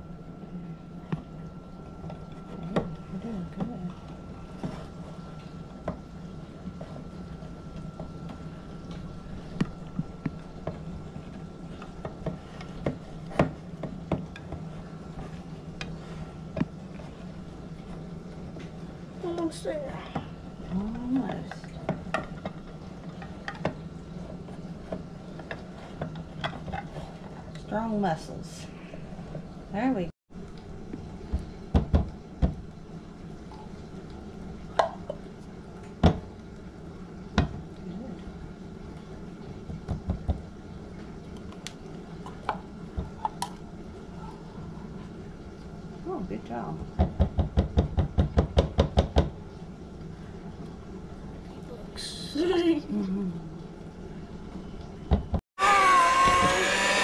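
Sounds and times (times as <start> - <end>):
low hum: 0.0 - 19.3
steady low hum: 0.0 - 55.4
can opener clicking: 55.6 - 57.0.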